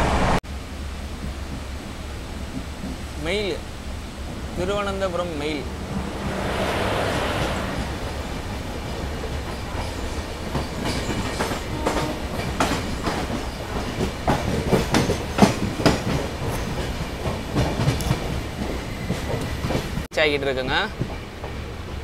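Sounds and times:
train steady rumble: 0.0 - 22.0
train wheels clattering: 1.0 - 22.0.

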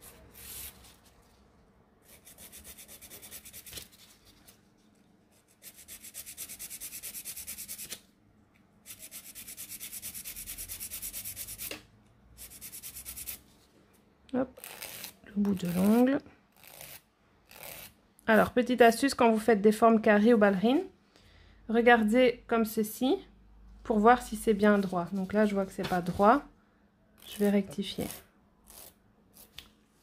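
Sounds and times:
nail file rasping on nail: 2.0 - 3.7, 5.6 - 8.0, 8.9 - 11.7, 12.4 - 13.4, 14.6 - 18.0.

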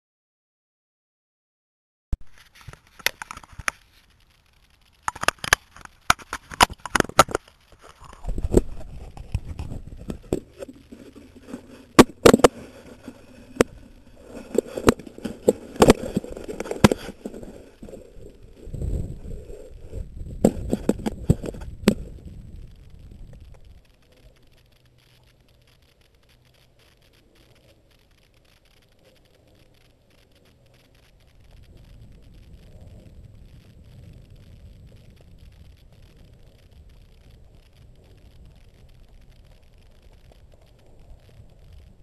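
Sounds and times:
low rumbling wind on microphone: 5.8 - 25.0, 28.7 - 42.0.

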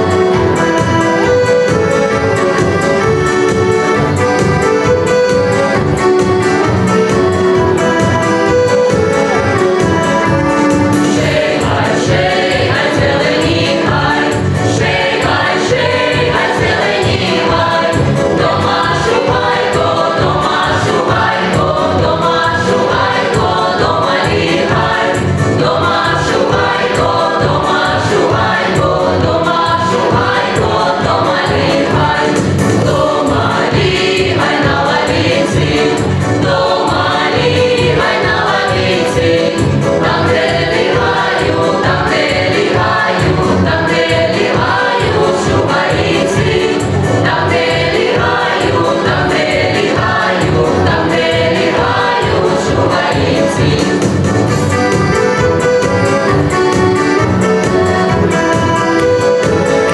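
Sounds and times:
accordion: 0.0 - 59.9
mixed choir singing: 7.8 - 56.8.

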